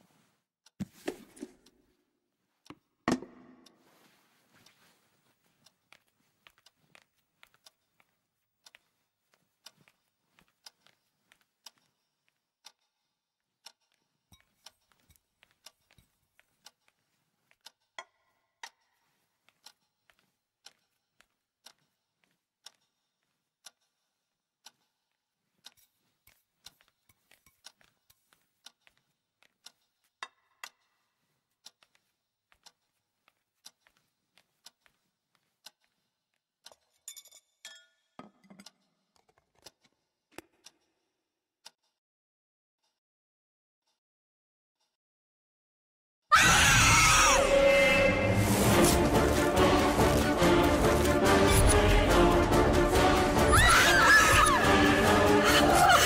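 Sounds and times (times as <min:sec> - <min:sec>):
faint clock ticking: 0:01.6 - 0:36.9.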